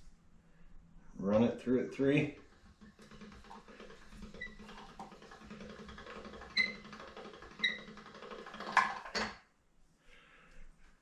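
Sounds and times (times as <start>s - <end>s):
pasta roller rumbling: 2.0s - 9.4s.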